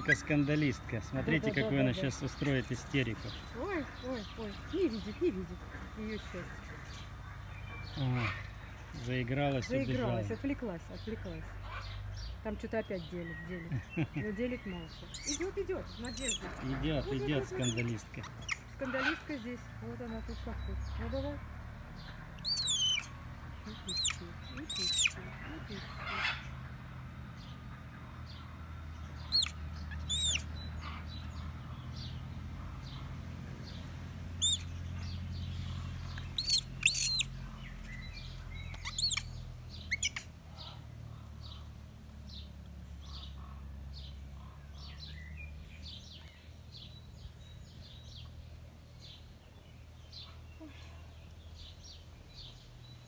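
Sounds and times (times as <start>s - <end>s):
monkey screaming: 0.0s - 0.4s, 15.1s - 19.3s, 22.4s - 23.1s, 23.9s - 25.2s, 29.3s - 30.5s, 34.4s - 34.7s, 36.4s - 37.3s, 38.8s - 39.3s, 39.9s - 40.3s.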